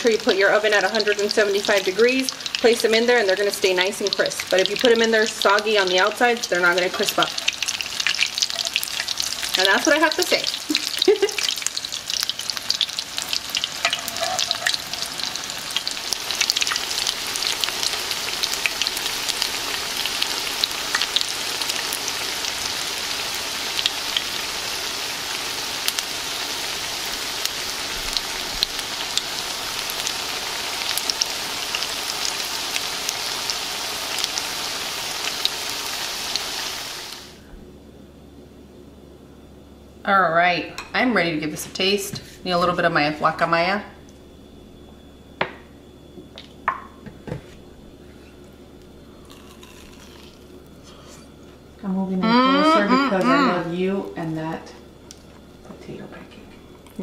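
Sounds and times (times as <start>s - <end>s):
potato cakes sizzling in oil: 0.0s - 37.4s.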